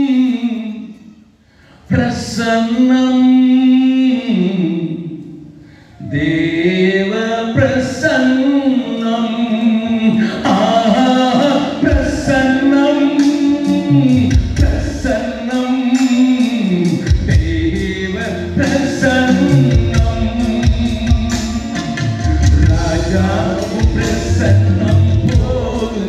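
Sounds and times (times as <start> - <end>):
man singing into microphone: 0.0 - 1.2, 1.8 - 26.0
deep instrumental notes: 10.2 - 26.0.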